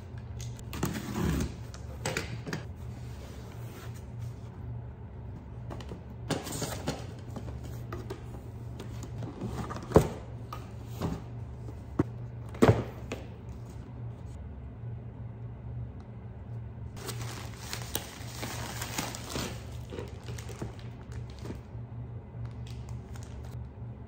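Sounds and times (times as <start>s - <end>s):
cardboard rustling: 17.0s - 21.6s.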